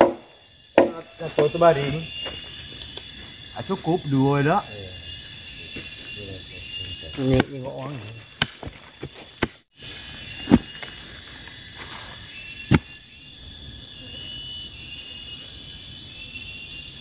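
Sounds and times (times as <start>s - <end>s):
sharp knocks: 0.0s - 1.0s
insect chorus drone: 0.0s - 17.0s.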